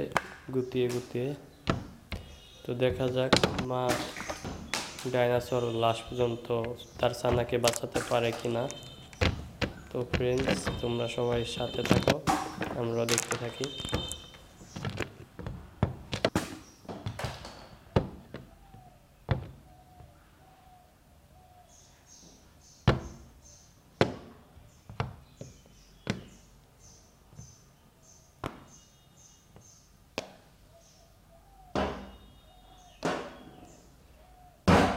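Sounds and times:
plastic toys knocking on hard lid: 0:07.2 - 0:15.1.

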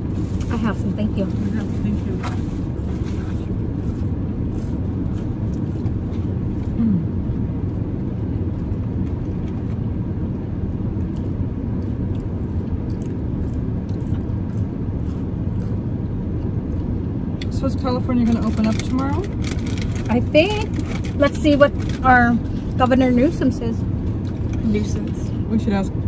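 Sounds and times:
air conditioning: 0:00.0 - 0:26.0
car engine rumble in cabin: 0:00.0 - 0:26.0
faint clicks and rustles: 0:18.2 - 0:22.9.

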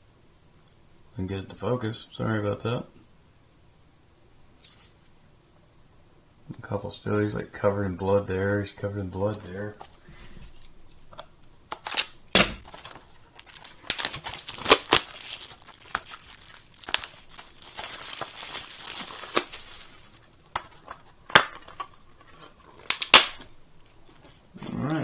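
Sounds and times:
plastic wrap tearing and crinkling: 0:11.7 - 0:24.4.

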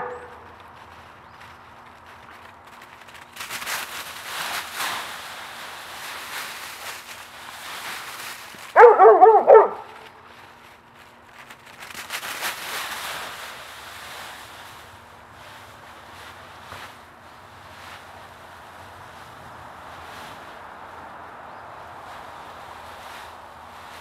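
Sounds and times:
dog barking: 0:00.0 - 0:00.4, 0:08.8 - 0:10.0
dry leaves crunching and rustling: 0:00.0 - 0:24.0.

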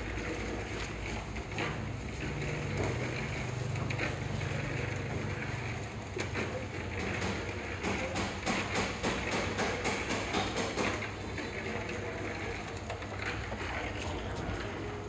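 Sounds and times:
construction site knocks and taps: 0:05.0 - 0:14.7.

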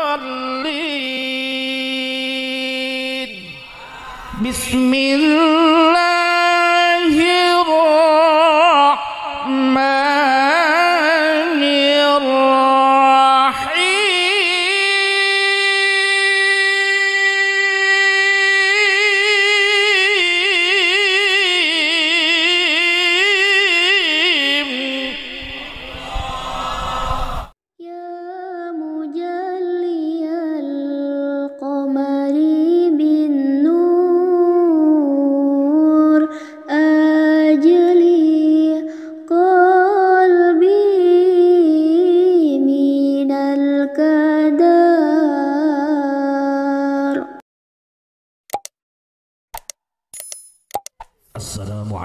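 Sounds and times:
man reciting melodically: 0:00.0 - 0:26.0, 0:51.4 - 0:52.0
another man reciting: 0:00.0 - 0:26.4.

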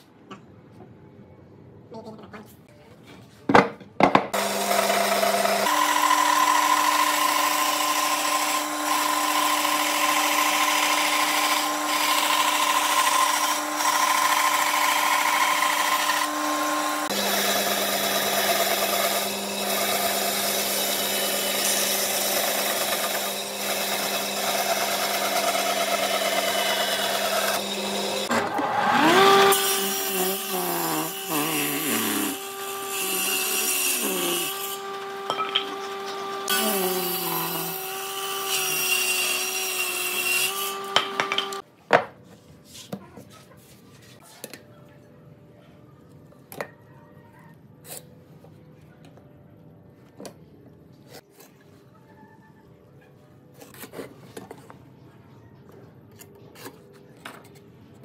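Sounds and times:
table saw cutting a board: 0:04.4 - 0:41.7.

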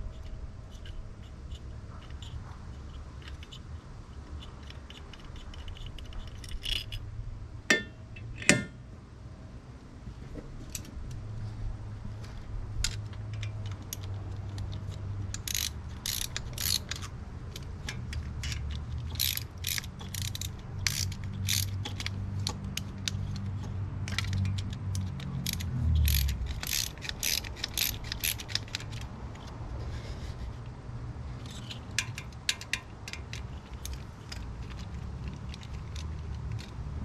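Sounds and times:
hand ratchet clicking: 0:00.1 - 0:07.0, 0:12.8 - 0:29.5, 0:31.4 - 0:36.8.

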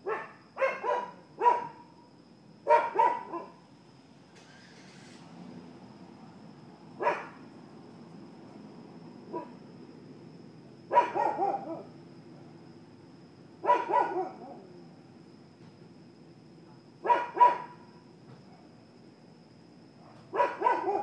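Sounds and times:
dog barking: 0:00.0 - 0:01.9, 0:02.7 - 0:03.6, 0:07.0 - 0:07.4, 0:09.3 - 0:09.6, 0:10.9 - 0:11.9, 0:13.6 - 0:14.7, 0:17.0 - 0:17.9, 0:20.0 - 0:21.0.

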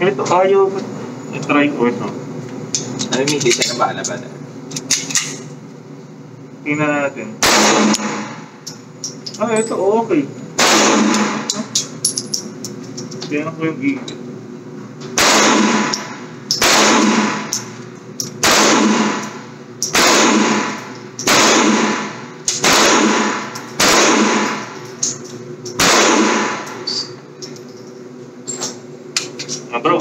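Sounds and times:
gunshots with ringing echo: 0:07.4 - 0:08.5, 0:10.6 - 0:11.6, 0:15.2 - 0:17.6, 0:18.4 - 0:24.8, 0:25.8 - 0:26.8.

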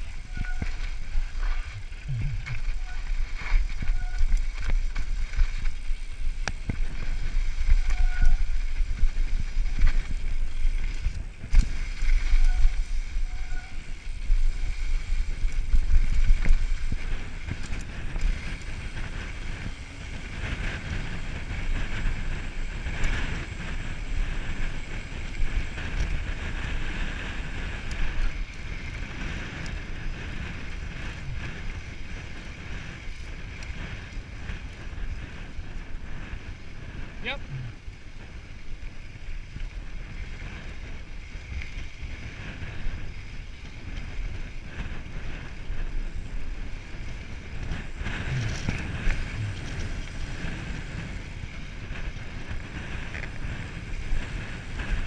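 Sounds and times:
wind buffeting microphone: 0:00.0 - 0:55.0
tyres on dirt: 0:39.5 - 0:55.0.

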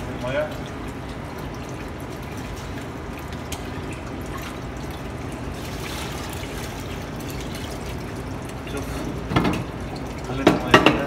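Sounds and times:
tap water running into pot: 0:00.0 - 0:11.0
water poured over rice: 0:01.4 - 0:09.1.

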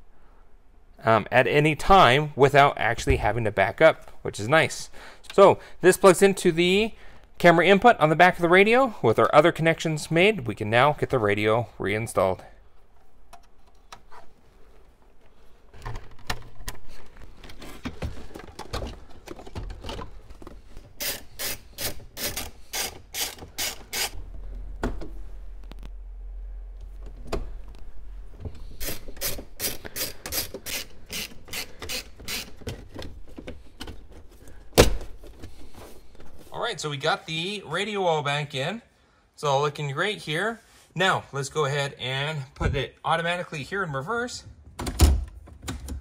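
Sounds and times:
wiring and plastic rustling: 0:12.6 - 0:26.0, 0:26.7 - 0:36.8
ratchet-like clicking: 0:21.0 - 0:24.2, 0:28.8 - 0:32.6.

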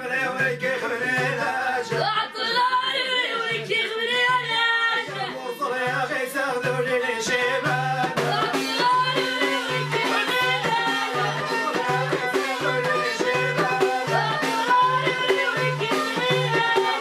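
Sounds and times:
hand frame drum beat: 0:00.0 - 0:17.0
woman singing folk song: 0:01.8 - 0:05.8, 0:08.3 - 0:17.0.

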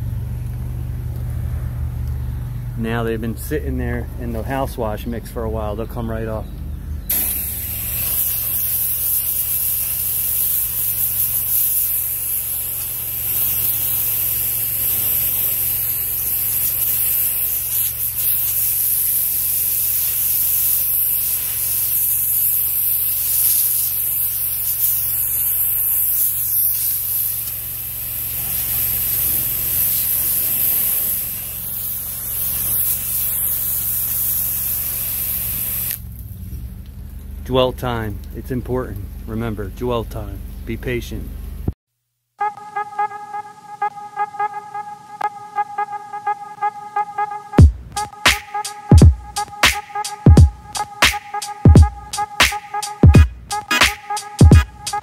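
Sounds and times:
low hum: 0:00.0 - 0:08.2, 0:35.9 - 0:41.8
pressure washer spraying wall: 0:07.1 - 0:36.2.

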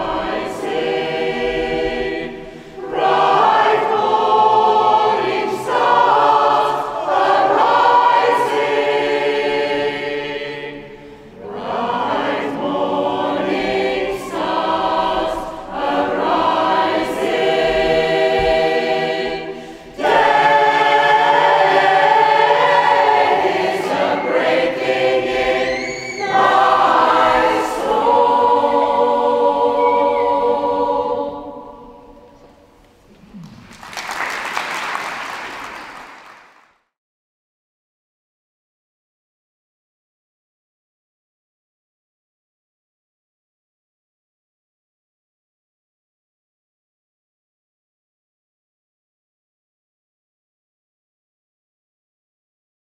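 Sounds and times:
choir singing: 0:00.0 - 0:33.1
applause: 0:33.4 - 0:36.9.

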